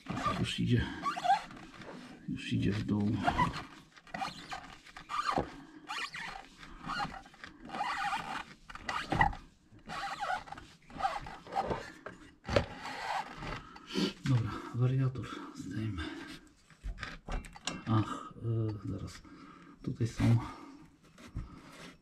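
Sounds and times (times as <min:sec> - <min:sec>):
rubber belt scraping metal: 0:00.0 - 0:14.4.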